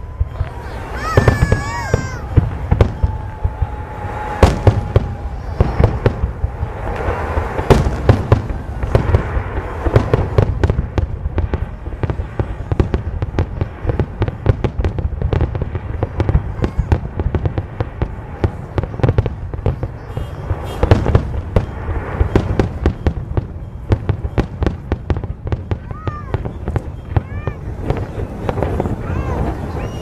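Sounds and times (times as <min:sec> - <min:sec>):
firework bangs and crackling: 0:00.0 - 0:30.0
loud firework booms: 0:00.0 - 0:30.0
thin steady whistle: 0:29.7 - 0:30.0.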